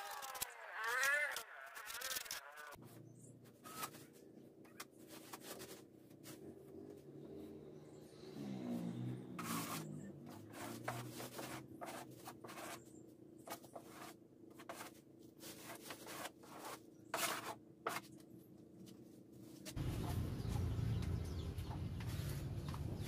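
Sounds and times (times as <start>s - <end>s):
rag scraping on plywood: 8.8s - 12.8s.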